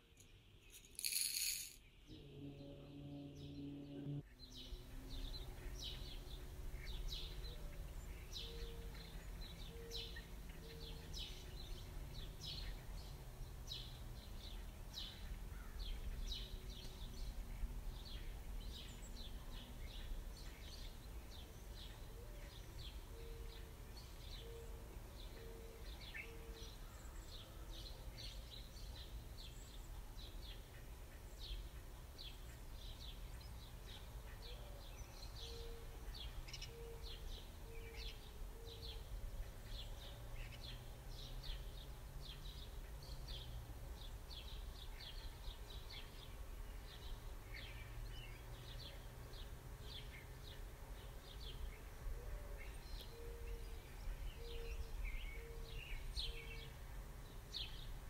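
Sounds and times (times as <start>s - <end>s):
small birds chirping: 0.0s - 2.1s.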